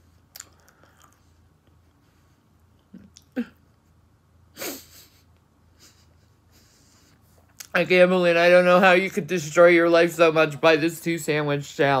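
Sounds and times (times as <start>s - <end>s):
woman snorting: 4.6s - 5.2s.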